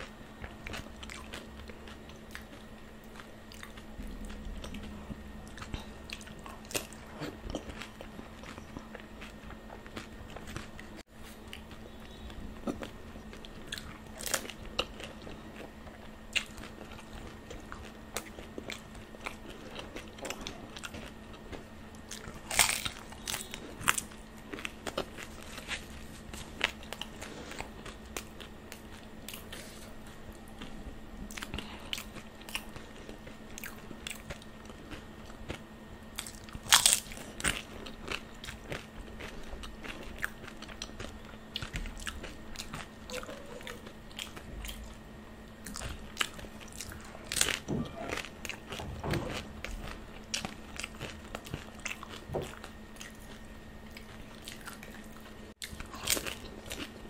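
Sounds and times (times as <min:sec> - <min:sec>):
wet chewing: 0:00.0 - 0:29.9, 0:30.6 - 0:57.0
faint steady hum: 0:00.0 - 0:57.0
crisp shells crunching in mouth: 0:22.0 - 0:29.6, 0:31.3 - 0:44.8.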